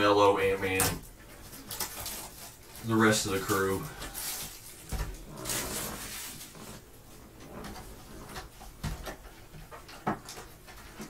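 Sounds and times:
plastic shrink wrap crinkling: 0.4s - 6.8s.

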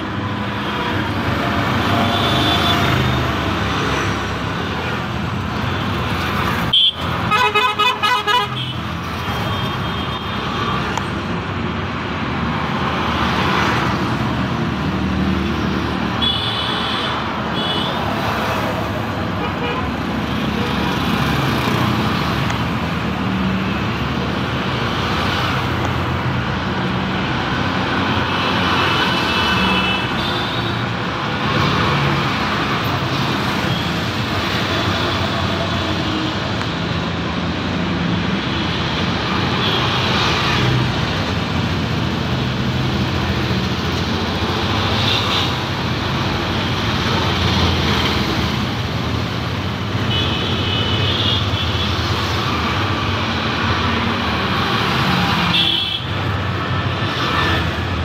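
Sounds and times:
road traffic: 0.0s - 58.0s.

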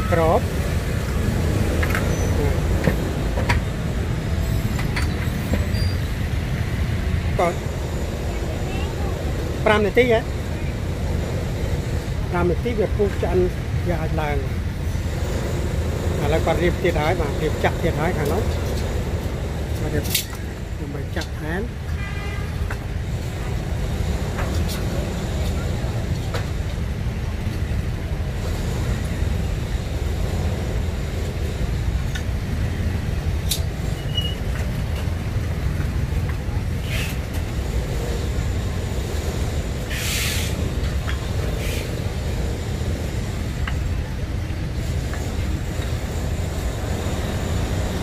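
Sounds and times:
passing motorbikes and vehicles: 0.0s - 48.0s
short hiss: 39.9s - 40.6s.

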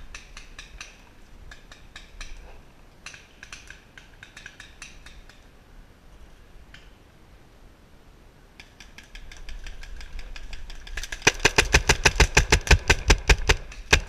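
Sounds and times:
paintball marker rapid firing: 8.8s - 14.0s.

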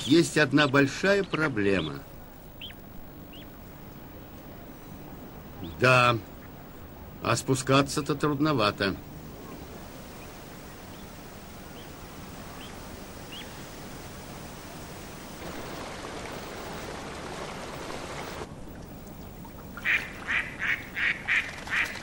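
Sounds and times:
water pouring into pond: 15.2s - 22.0s
duck quacking: 19.8s - 22.0s.

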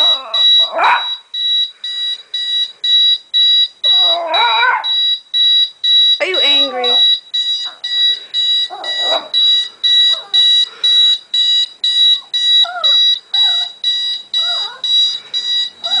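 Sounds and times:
puppy crying: 0.0s - 1.2s, 3.9s - 5.0s, 7.6s - 9.4s, 10.0s - 10.6s, 12.1s - 13.8s, 14.4s - 15.2s, 15.8s - 16.0s
electronic alarm beeping: 0.0s - 16.0s.

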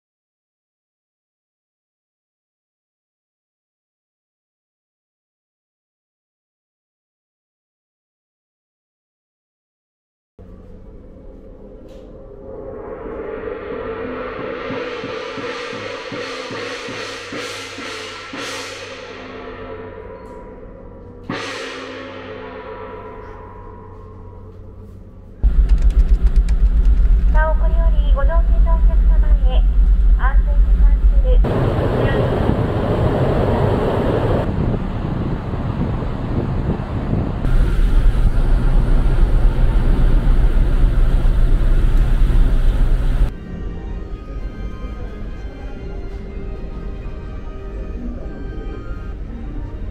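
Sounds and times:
background music: 10.4s - 31.5s, 43.3s - 49.9s
cymbal crashes: 12.2s - 24.5s
noisy rush on deck: 25.4s - 43.3s
loud low rumble: 25.4s - 43.4s.

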